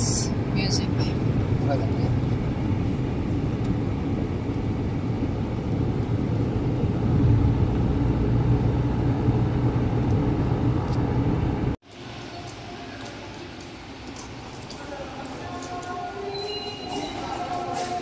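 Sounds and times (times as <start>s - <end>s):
car engine and road rumble: 0.0s - 12.2s.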